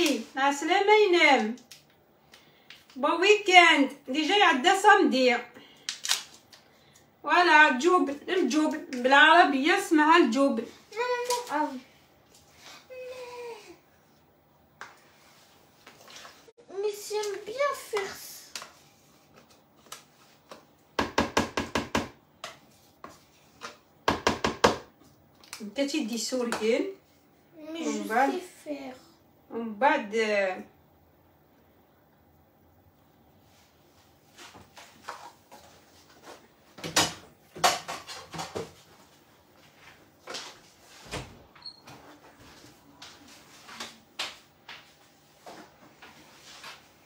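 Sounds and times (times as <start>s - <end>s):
kitchen things knocking and clattering: 24.0s - 24.9s, 36.8s - 38.8s.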